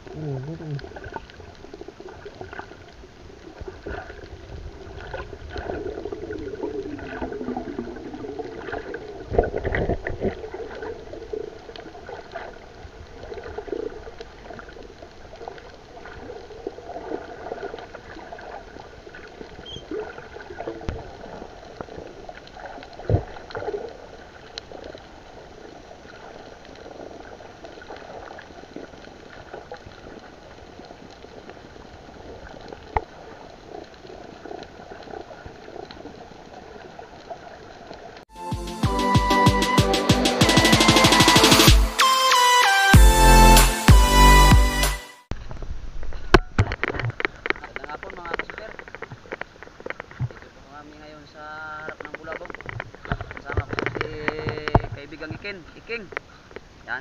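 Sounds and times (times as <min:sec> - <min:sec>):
muffled underwater rush: 0:00.0 - 0:38.3.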